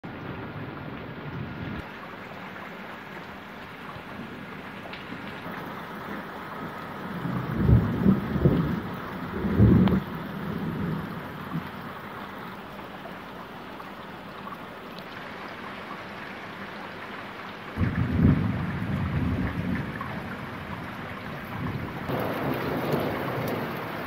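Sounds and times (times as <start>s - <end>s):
steady rain falling: 0.0s - 24.0s
rolling thunder rumble: 7.0s - 11.8s, 17.8s - 24.0s.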